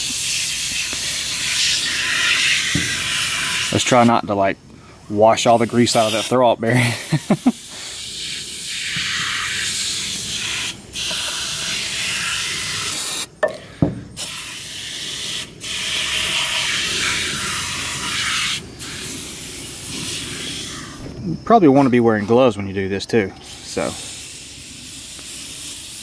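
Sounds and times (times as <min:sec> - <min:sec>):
aerosol can spraying: 0:00.0 - 0:04.2, 0:05.4 - 0:06.4, 0:07.1 - 0:13.3, 0:14.2 - 0:21.0, 0:23.4 - 0:26.0.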